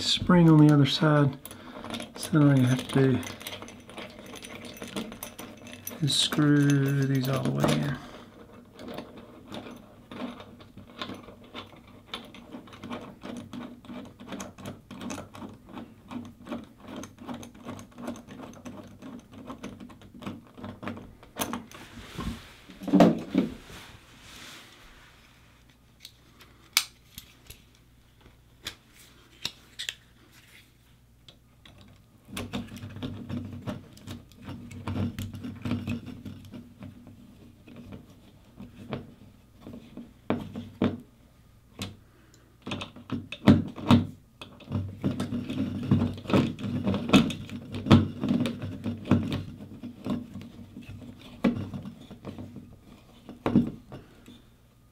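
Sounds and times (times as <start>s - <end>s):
screwdriver clicking and scraping: 28.6s - 30.6s.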